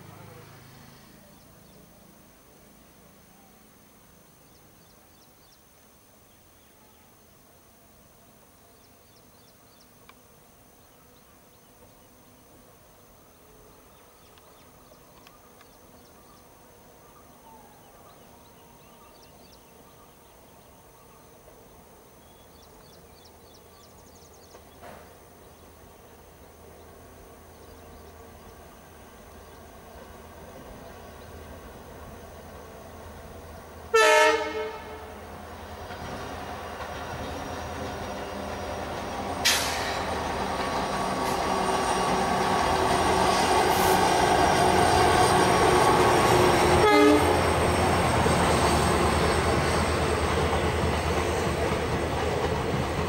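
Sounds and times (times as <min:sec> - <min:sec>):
insects chirping: 0:00.0 - 0:33.9, 0:34.7 - 0:53.0
diesel locomotive rumble: 0:25.8 - 0:53.0.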